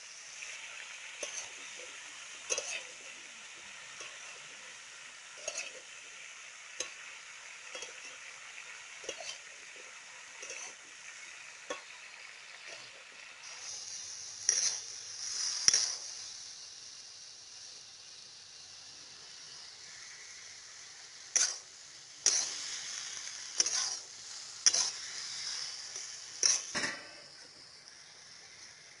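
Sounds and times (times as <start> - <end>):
food sizzling: 0.0 - 29.0
sharp steam hissing bursts: 0.0 - 29.0
metal spatula scraping a pan: 0.4 - 3.2, 3.8 - 6.0, 6.8 - 8.3, 9.0 - 16.3, 20.7 - 27.4.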